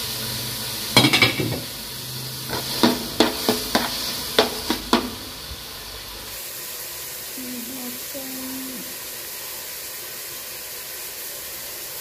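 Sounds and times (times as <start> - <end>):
vegetables sizzling in oil: 0.0 - 12.0
ladle knocking against metal pot: 1.0 - 1.7, 2.5 - 5.2
ladle stirring in pot: 2.4 - 5.4.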